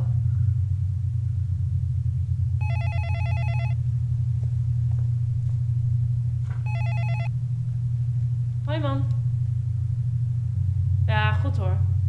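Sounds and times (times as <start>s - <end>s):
low hum: 0.0s - 12.0s
telephone ringing: 2.6s - 3.8s, 6.6s - 7.3s.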